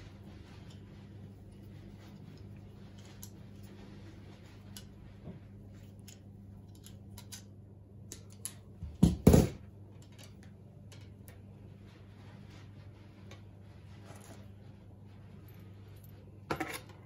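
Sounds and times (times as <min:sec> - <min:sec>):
faint steady hum: 0:00.0 - 0:17.0
tools clicking and tapping on wood: 0:06.0 - 0:09.2.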